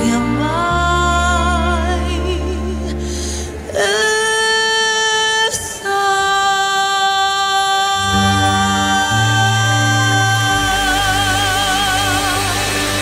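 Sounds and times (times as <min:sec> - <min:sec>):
low accompaniment notes: 0:00.0 - 0:03.8, 0:08.0 - 0:13.0.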